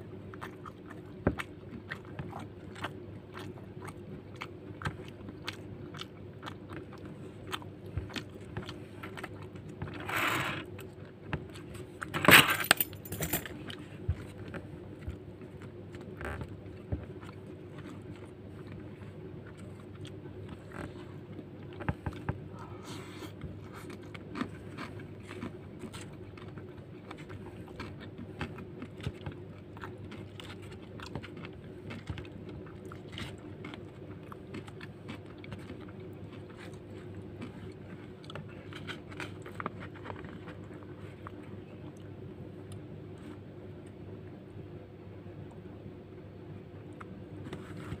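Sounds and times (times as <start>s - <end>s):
chewing and biting: 0.0s - 10.0s, 10.6s - 12.1s, 13.5s - 44.0s
plastic spoon scraping: 9.9s - 10.7s.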